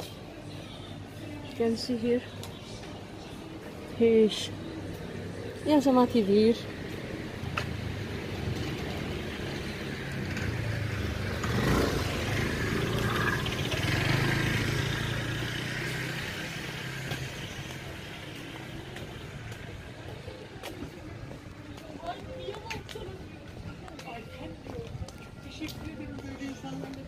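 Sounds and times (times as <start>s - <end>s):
vehicle engine passing by: 7.7s - 18.7s.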